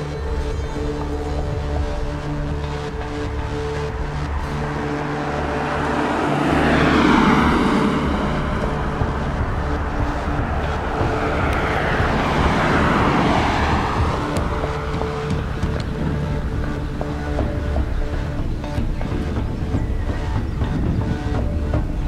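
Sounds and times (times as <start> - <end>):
road vehicles passing: 0.0 - 22.0.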